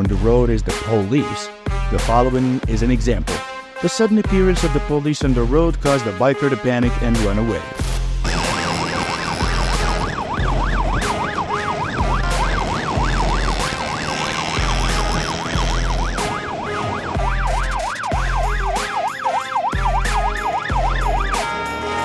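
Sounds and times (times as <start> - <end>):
music with pulsing bass beat: 7.8 - 11.2, 12.0 - 16.5, 17.1 - 22.0
police siren yelping: 8.2 - 22.0.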